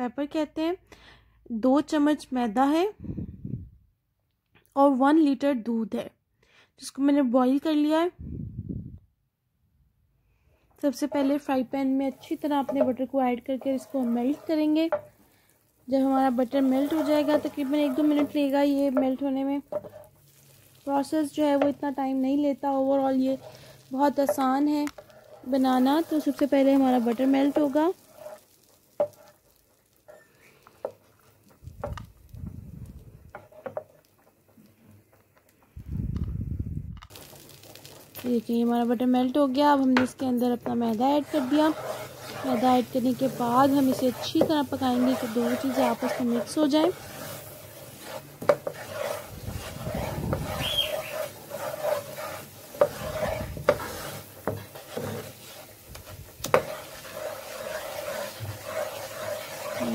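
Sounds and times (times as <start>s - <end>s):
butter sizzling in a frying pan: 10.8s - 35.7s, 37.1s - 59.9s
utensil knocking and scraping pan: 10.9s - 15.2s, 16.0s - 20.2s, 21.0s - 22.0s, 22.9s - 29.5s, 30.1s - 32.4s, 33.2s - 35.2s, 39.8s - 59.9s.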